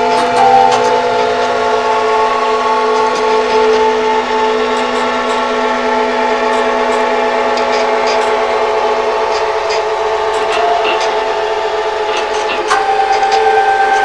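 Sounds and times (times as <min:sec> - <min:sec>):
scanner and printer motors whining: 0:00.0 - 0:14.0.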